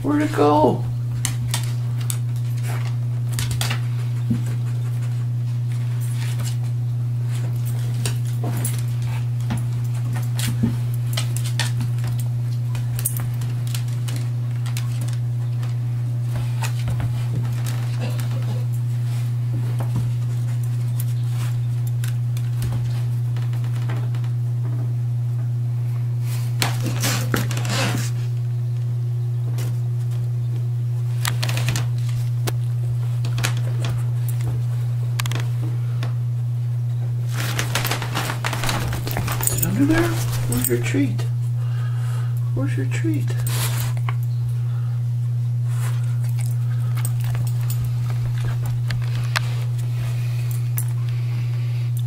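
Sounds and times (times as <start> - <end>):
dog paws scrabbling: 0.0 - 25.6, 26.2 - 44.6, 45.4 - 52.0
steady low hum: 0.0 - 52.0
dog scratching at towel: 26.4 - 28.3, 37.2 - 41.1
dog sniffing: 43.3 - 44.1.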